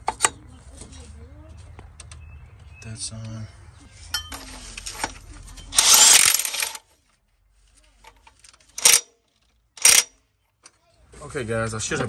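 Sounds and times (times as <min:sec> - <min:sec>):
impact wrench running: 0:05.8 - 0:06.8, 0:08.8 - 0:09.1, 0:09.8 - 0:10.1.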